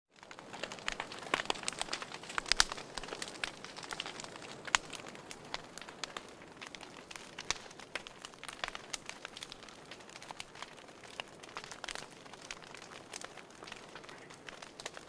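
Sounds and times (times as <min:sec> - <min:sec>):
wood fire crackling: 0:00.1 - 0:15.0.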